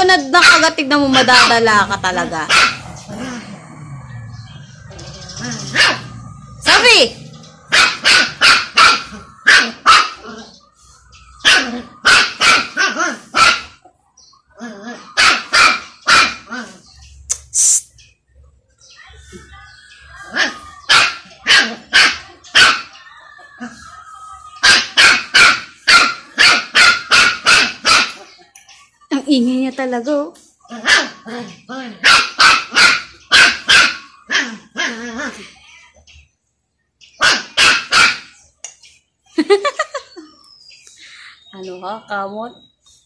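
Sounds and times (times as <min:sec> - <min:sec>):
puppy yapping: 0:02.4 - 0:03.5, 0:04.6 - 0:06.9, 0:07.6 - 0:10.5, 0:14.6 - 0:17.0, 0:20.2 - 0:23.0, 0:24.6 - 0:28.4, 0:30.7 - 0:35.6, 0:37.2 - 0:38.4.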